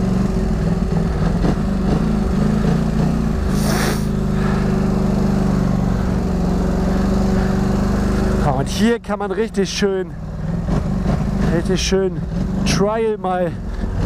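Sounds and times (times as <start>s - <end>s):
quad engine running: 0.0s - 14.0s
brief hiss: 3.5s - 4.2s.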